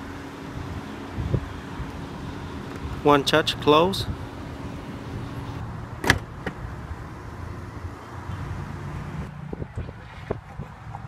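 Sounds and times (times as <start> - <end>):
car trunk lid closing: 6.0 - 6.6
trunk latch clicking: 6.0 - 6.6.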